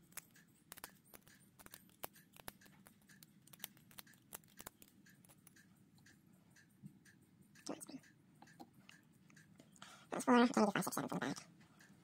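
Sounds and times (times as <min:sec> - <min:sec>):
metal tweezers clicking: 0:00.0 - 0:06.7.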